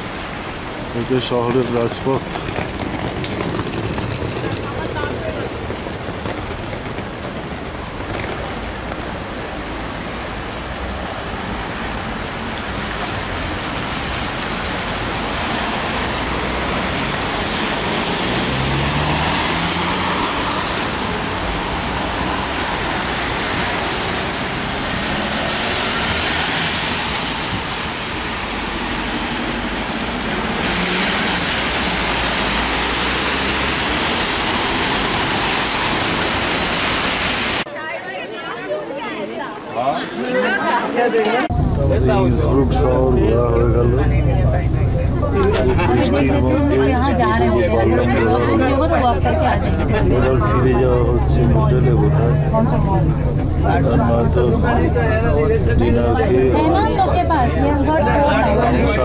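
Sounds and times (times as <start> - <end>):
tyres hissing on wet road: 8.2 - 37.7
low engine hum: 41.5 - 59.0.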